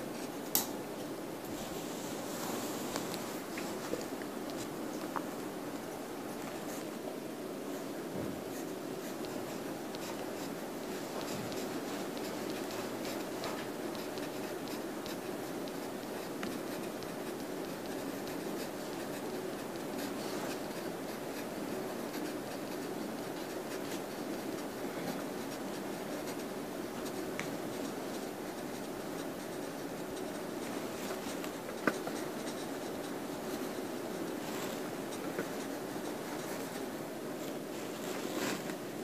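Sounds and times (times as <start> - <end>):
pencil scratching on paper: 7.8 - 38.6.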